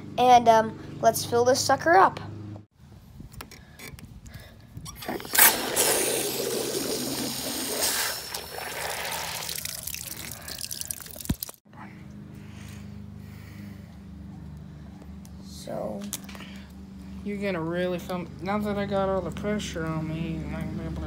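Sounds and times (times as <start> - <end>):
water rushing from a spigot: 5.0 - 11.6
water splashing on ground: 5.2 - 11.6.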